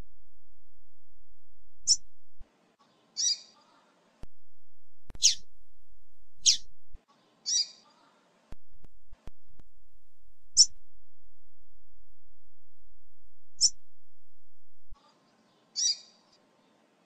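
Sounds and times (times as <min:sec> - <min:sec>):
high downward-sliding bird chirps: 0:01.8 - 0:02.0, 0:05.2 - 0:05.4, 0:06.4 - 0:06.7, 0:13.6 - 0:13.8, 0:15.8 - 0:16.1.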